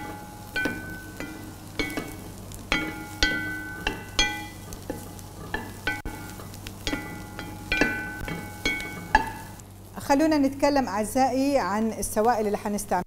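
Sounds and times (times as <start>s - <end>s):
wooden spoon knocking pot: 0.0s - 9.6s
faint sizzle of sauteing: 0.0s - 13.0s.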